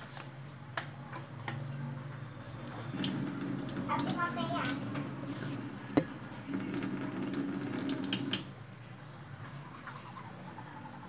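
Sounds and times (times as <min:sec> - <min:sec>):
water running from faucet: 0:02.9 - 0:08.5.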